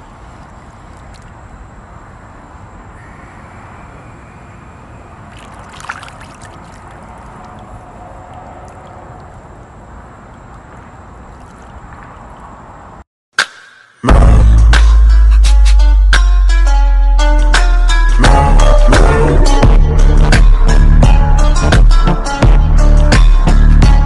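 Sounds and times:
water splash: 5.2s - 7.7s, 11.2s - 12.6s
pool water lapping and sloshing: 5.2s - 7.8s, 10.2s - 12.7s.

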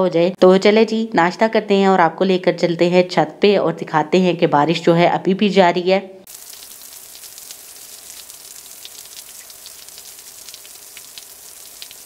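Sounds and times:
rain on a flat roof: 6.3s - 12.0s
rain splashing into water: 6.3s - 12.0s.

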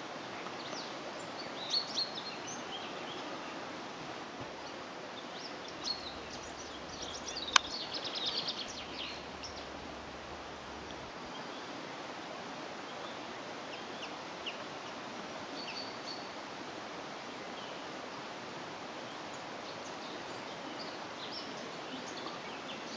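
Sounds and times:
small birds chirping: 0.0s - 12.2s, 12.8s - 16.6s, 17.2s - 22.9s
outdoor hiss: 0.0s - 22.9s
sharp click: 7.5s - 7.8s.

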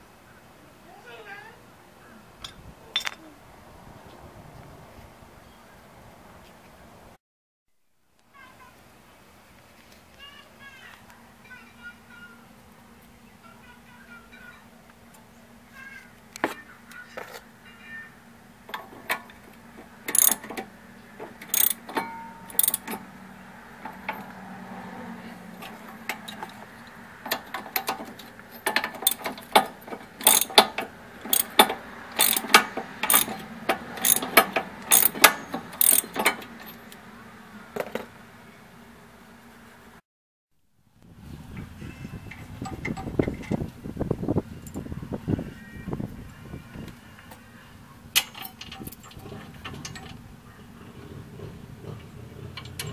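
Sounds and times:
metal tools clinking: 2.4s - 3.2s, 20.1s - 23.1s, 25.5s - 37.0s
ratchet wrench clicking: 20.1s - 20.6s, 21.4s - 23.0s, 27.3s - 36.9s.

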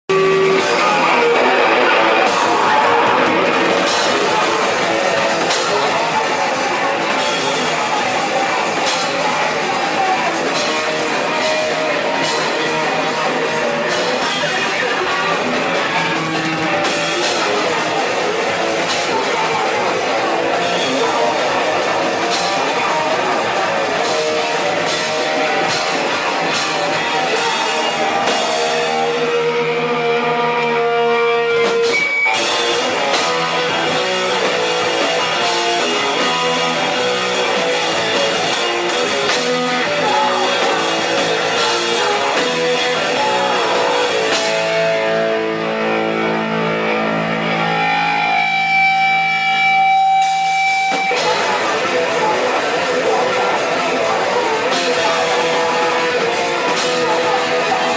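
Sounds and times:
punk band playing loud: 0.0s - 57.9s
electric guitar ringing: 0.1s - 57.9s.

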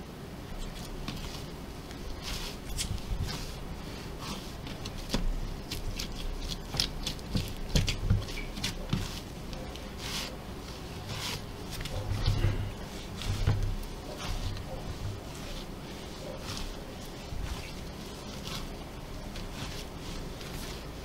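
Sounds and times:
dough thumps and squishes: 0.5s - 21.0s
hands rubbing on pastry board: 0.6s - 21.0s.

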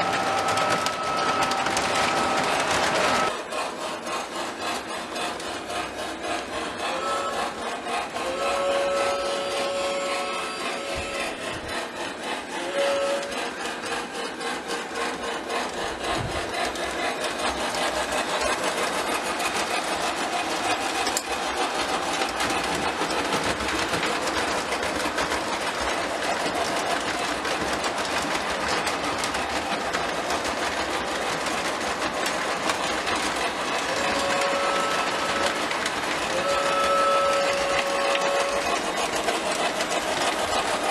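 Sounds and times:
toy locomotive whistle: 0.0s - 3.4s, 6.3s - 11.9s, 12.5s - 14.2s, 33.1s - 40.9s
wheels rattling over rails: 0.0s - 40.9s.

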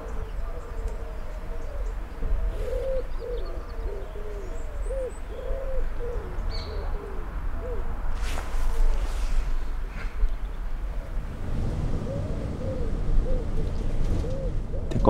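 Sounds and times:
doves cooing: 0.0s - 8.1s, 10.8s - 15.0s
short rustle: 8.1s - 10.2s
low rumble: 10.8s - 15.0s.

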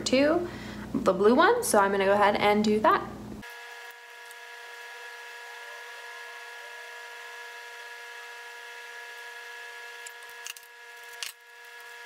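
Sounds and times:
steady whir of held tones: 2.6s - 12.0s.

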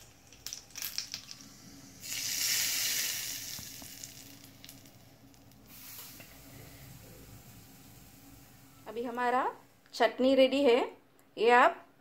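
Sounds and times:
mustard seeds popping in oil: 0.0s - 1.4s, 2.0s - 6.3s
loud sizzle: 0.0s - 9.8s.

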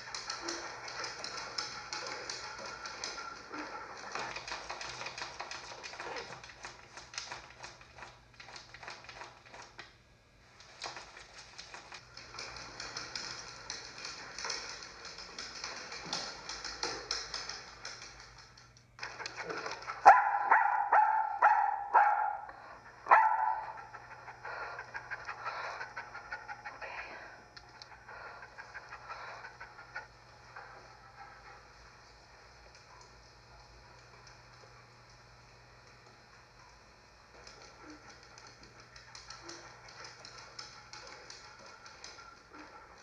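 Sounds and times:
dog barking: 20.0s - 24.1s.

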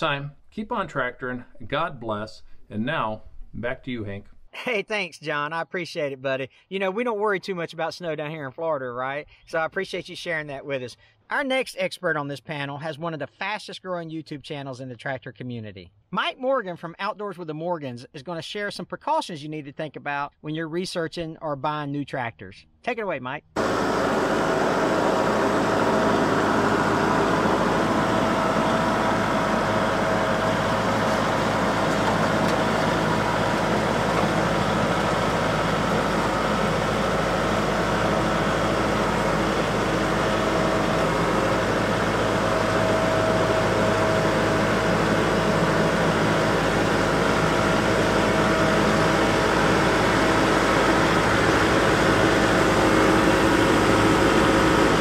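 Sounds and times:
tractor diesel engine under load: 23.6s - 55.0s.

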